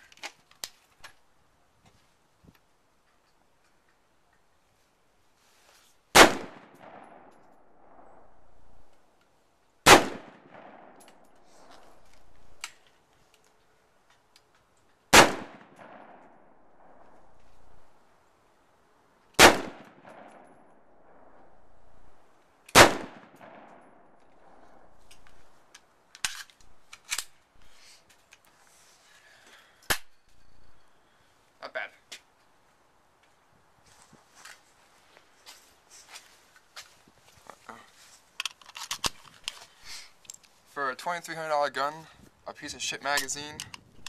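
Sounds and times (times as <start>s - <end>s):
rifle shots echoing: 6.1s - 8.9s, 9.8s - 12.6s, 15.1s - 17.8s, 19.4s - 22.1s, 22.7s - 25.0s.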